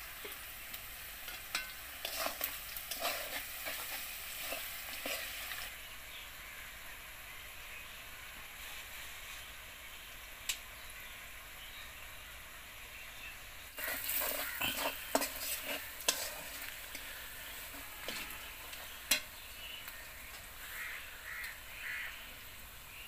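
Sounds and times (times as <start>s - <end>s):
food sizzling in oil: 0.0s - 6.8s, 13.5s - 23.0s
metal spatula scraping pan: 1.2s - 5.7s, 13.8s - 21.4s.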